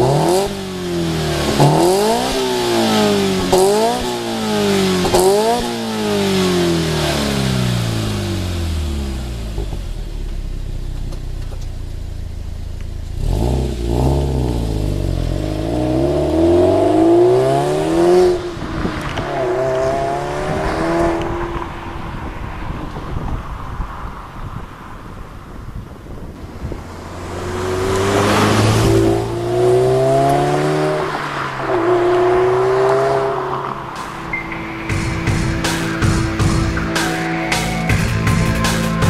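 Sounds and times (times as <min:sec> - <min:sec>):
car engine revving: 0:00.0 - 0:39.0
engine throttle blips: 0:26.2 - 0:39.0.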